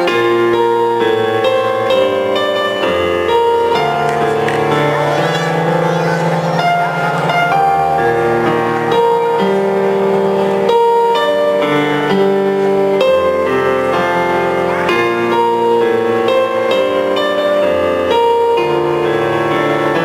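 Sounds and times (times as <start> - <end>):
slow piano piece: 0.0 - 20.0.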